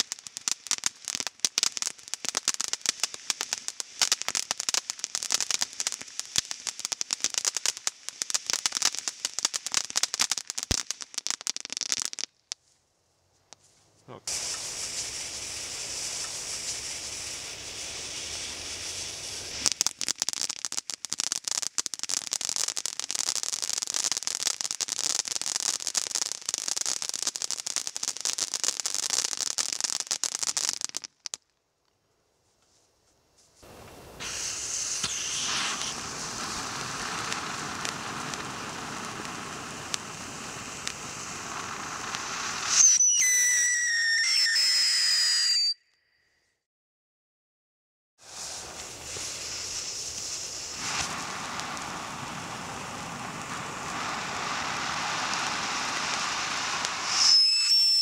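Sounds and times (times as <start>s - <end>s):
fountain firework hissing: 0.0s - 12.2s, 14.2s - 31.1s, 33.6s - 45.8s, 48.2s - 58.0s
firework crackling: 0.0s - 12.8s, 13.4s - 31.9s, 33.4s - 45.8s, 48.2s - 58.0s
rocket whistle shrieking: 34.2s - 38.4s, 42.0s - 46.4s, 56.9s - 58.0s.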